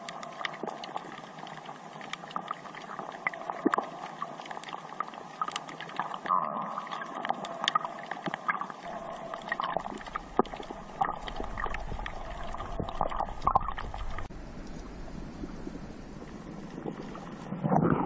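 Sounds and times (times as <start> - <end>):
sharp underwater clicks: 0.0 - 6.3, 6.9 - 15.0
underwater bubbling wash: 0.0 - 18.0.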